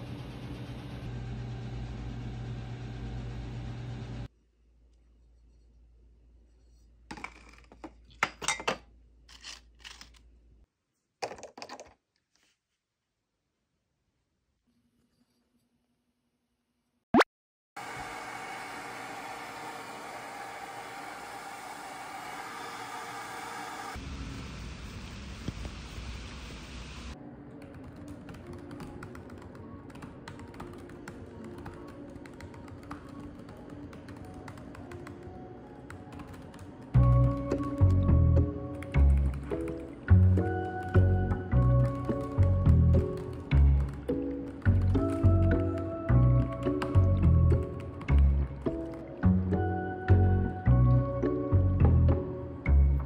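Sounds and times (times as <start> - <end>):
potato chips crunching: 9.3 - 10.3
rain hissing: 20.5 - 27.2
computer keyboard clicking: 35.9 - 37.7.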